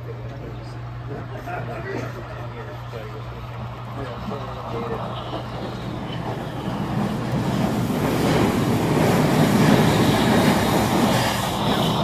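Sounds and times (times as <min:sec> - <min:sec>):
model train wheels rattling on rail: 0:04.2 - 0:12.0.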